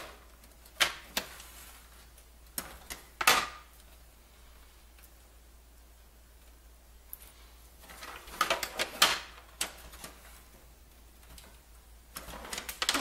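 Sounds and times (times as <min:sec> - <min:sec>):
plastic parts clicking and scraping: 0:07.8 - 0:10.5, 0:11.2 - 0:13.0.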